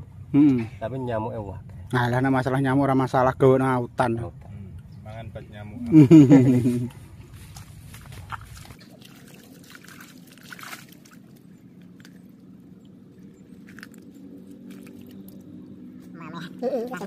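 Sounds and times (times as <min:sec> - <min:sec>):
faint low hum: 0:00.0 - 0:17.0
hands sloshing in muddy water: 0:08.0 - 0:15.7.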